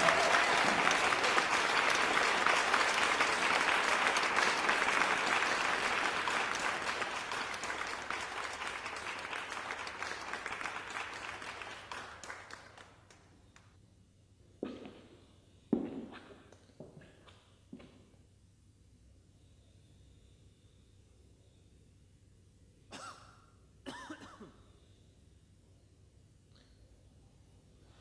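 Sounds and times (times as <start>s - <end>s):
audience applause: 0.0s - 13.2s.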